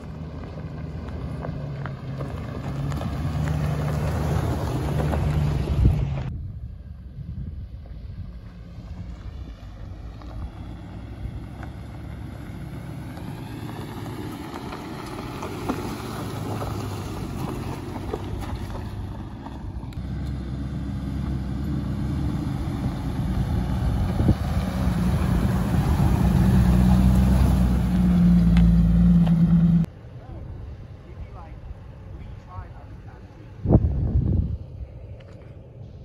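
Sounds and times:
car driving on gravel: 0.0 - 36.0
engine and tyre noise: 0.0 - 36.0
wind on microphone: 5.6 - 8.7, 22.7 - 26.5, 33.6 - 35.1.

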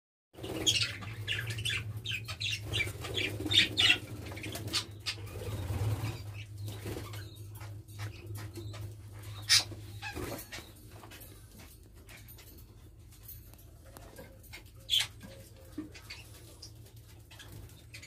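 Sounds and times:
budgerigars chattering: 0.4 - 10.8, 14.5 - 18.0
steady low hum: 0.4 - 18.0
wing flutters: 2.6 - 7.3.

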